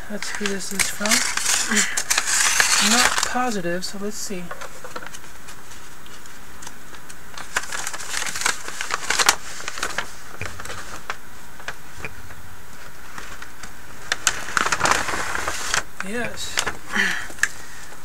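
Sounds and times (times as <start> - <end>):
steady low hiss: 0.0 - 18.0
envelope rustling and clicking: 0.2 - 3.3, 4.8 - 11.8, 13.1 - 15.8.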